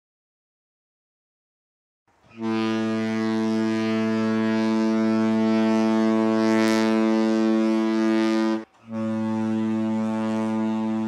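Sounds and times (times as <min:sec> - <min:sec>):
ship horn blast: 0:02.3 - 0:11.0.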